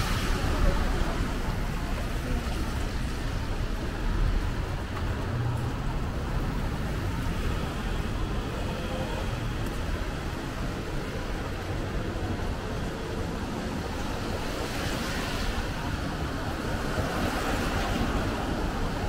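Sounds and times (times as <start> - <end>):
traffic on wet road: 0.0 - 19.0.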